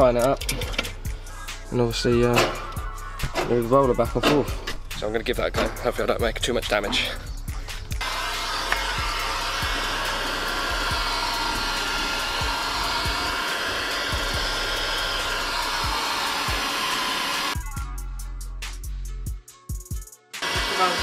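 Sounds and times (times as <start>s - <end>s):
heat gun blowing: 8.0s - 17.6s, 20.4s - 21.0s.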